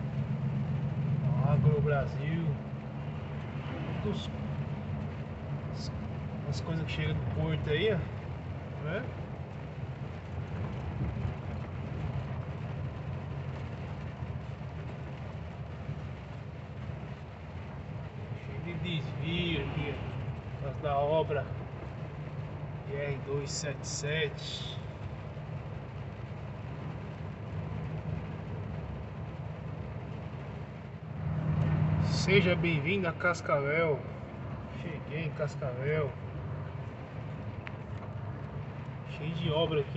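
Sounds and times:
road noise on wet road: 0.0 - 39.9
truck engine drone: 0.0 - 39.9.

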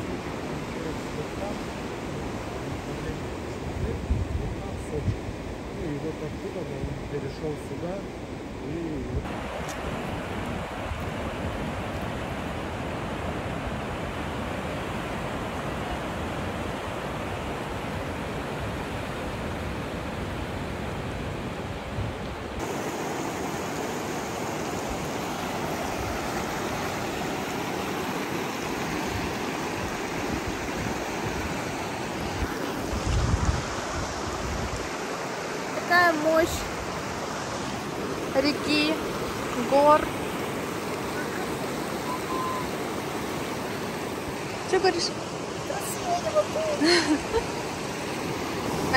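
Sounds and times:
river flowing over stones: 9.2 - 21.5, 22.4 - 48.9.

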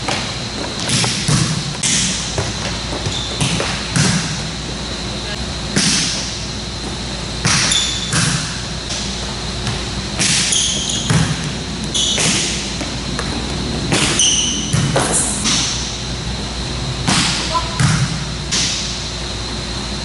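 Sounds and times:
sneaker squeaks: 0.0 - 5.3, 7.4 - 8.6, 9.6 - 16.0
volleyball hitting forearms: 7.4 - 9.0.

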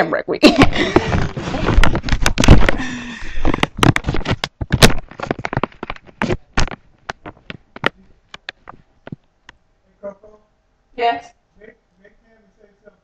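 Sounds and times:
microphone handling rustle: 0.6 - 9.4
sharp clicks and knocks: 3.4 - 9.6.

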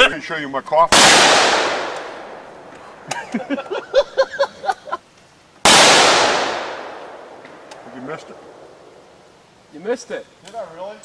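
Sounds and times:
gunshots ringing out: 0.9 - 2.5, 5.6 - 8.7.

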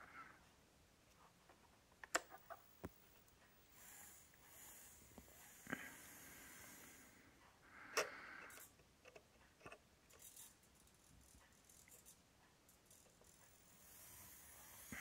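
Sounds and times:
toy tractor clicks and rattles: 8.0 - 15.0.

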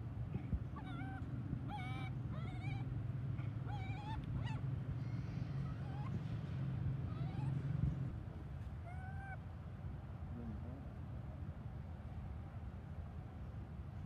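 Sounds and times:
monkeys calling: 0.8 - 2.9, 3.5 - 6.2, 7.1 - 7.6.

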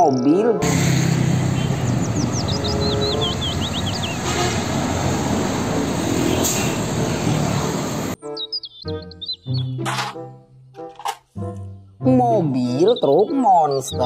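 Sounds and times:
music: 0.0 - 0.6, 2.3 - 4.0, 8.2 - 14.0
roadside traffic noise: 0.6 - 8.2
truck driving past: 0.6 - 8.2.

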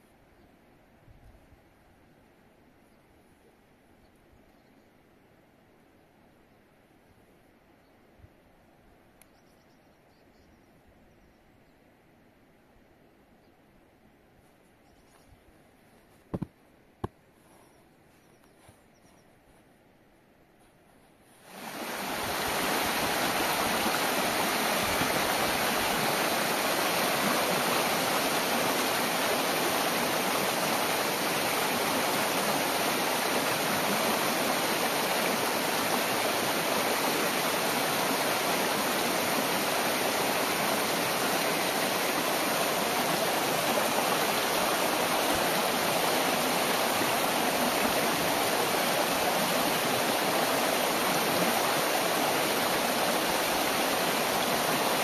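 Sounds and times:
stream rushing over rocks: 21.4 - 55.0.

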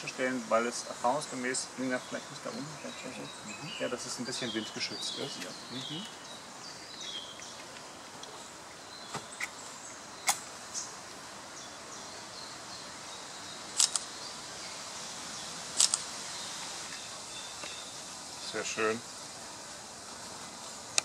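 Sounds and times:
faint birdsong: 0.0 - 21.0.

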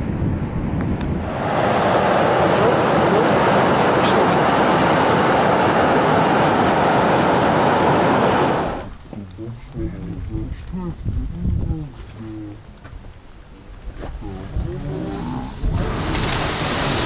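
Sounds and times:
steam vent hissing: 1.2 - 8.9.

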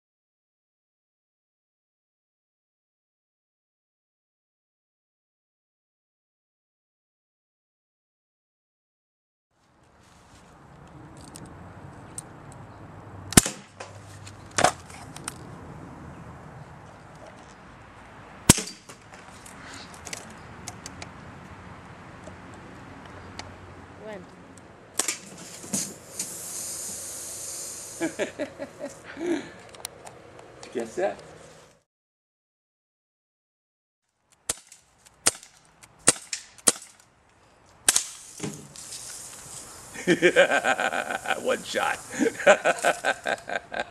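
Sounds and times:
bb gun shots: 13.3 - 13.8, 18.5 - 18.9
bb guns firing: 13.3 - 13.9, 18.5 - 19.0, 34.5 - 37.0.

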